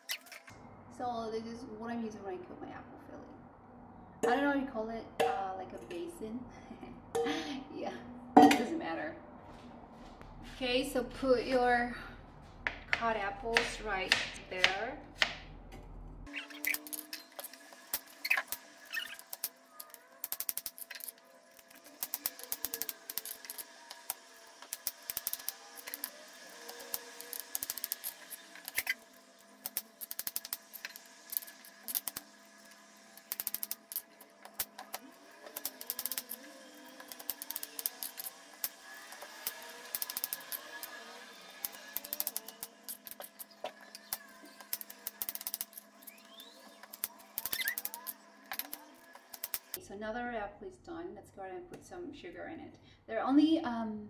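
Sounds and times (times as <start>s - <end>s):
knife slicing apple: 12.9s - 15.4s.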